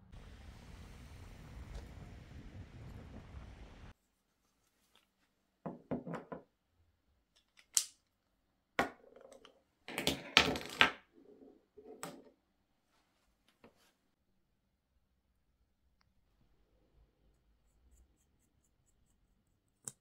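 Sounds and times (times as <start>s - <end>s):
small objects set down on desk: 5.7s - 6.5s, 8.8s - 11.0s.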